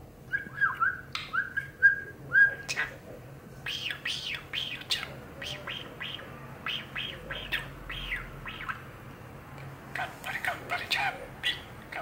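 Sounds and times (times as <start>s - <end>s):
budgerigar chattering: 3.7s - 9.0s, 10.0s - 12.0s.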